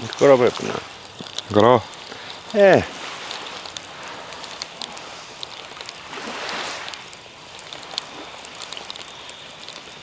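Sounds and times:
small waves lapping: 0:00.0 - 0:10.0
faint clicks: 0:03.2 - 0:10.0.

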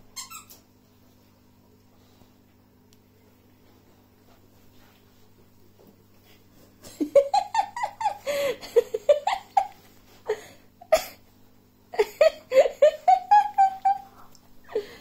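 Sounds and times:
person laughing: 0:06.8 - 0:11.2, 0:12.0 - 0:15.0.

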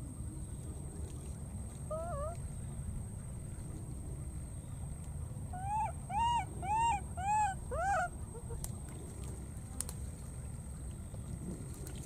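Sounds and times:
baby macaque cooing: 0:01.9 - 0:02.4, 0:05.6 - 0:08.6.

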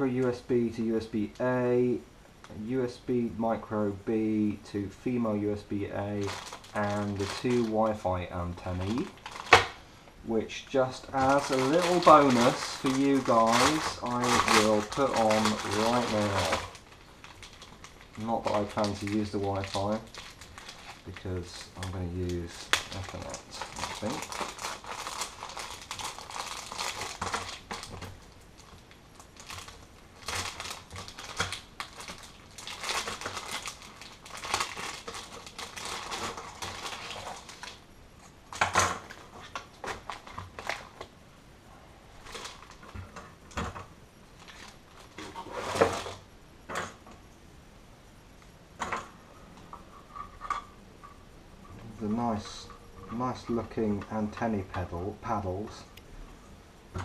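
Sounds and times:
plastic bag crinkling: 0:06.0 - 0:09.8, 0:10.6 - 0:41.1, 0:42.1 - 0:43.7, 0:44.4 - 0:46.2.

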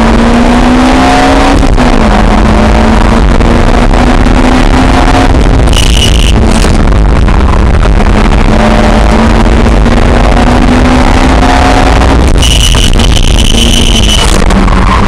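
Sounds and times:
sports car engine running hard: 0:00.0 - 0:15.0
high steady tyre squeal: 0:05.7 - 0:06.6, 0:11.4 - 0:15.0.

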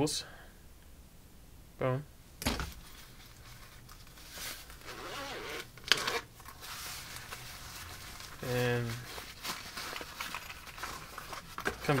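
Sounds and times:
packaging rustling and scraping: 0:02.7 - 0:12.0.

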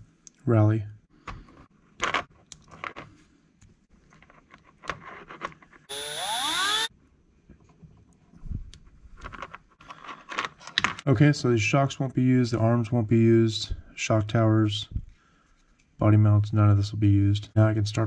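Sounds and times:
plastic parts clicking and scraping: 0:04.0 - 0:05.9, 0:08.7 - 0:11.1
loud rising whine with hiss: 0:05.9 - 0:06.9.

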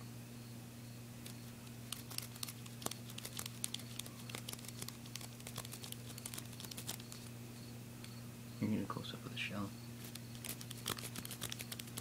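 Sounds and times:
knife scraping plastic: 0:10.0 - 0:12.0.

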